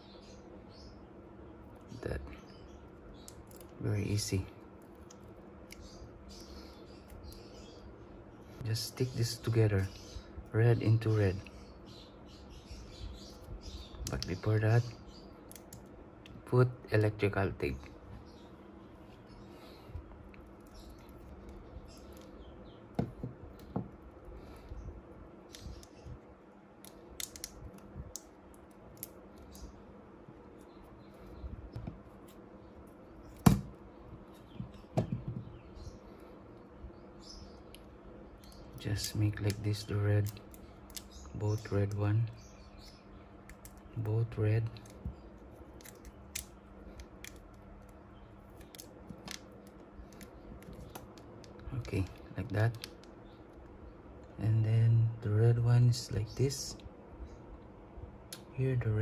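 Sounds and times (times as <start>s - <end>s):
tape and wires handling clicks: 13.2s - 14.5s, 15.4s - 16.4s, 20.0s - 24.7s, 25.4s - 29.8s, 37.2s - 42.1s, 42.8s - 54.4s.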